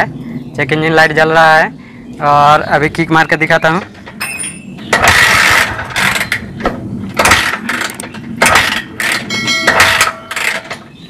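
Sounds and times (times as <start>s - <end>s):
moped engine cranking by kick-starter: 3.8s - 10.8s.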